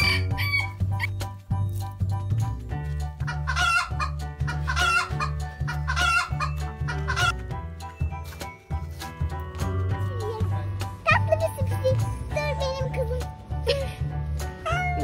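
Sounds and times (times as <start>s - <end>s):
background music with bass line: 0.0s - 15.0s
chicken clucking: 3.2s - 7.4s.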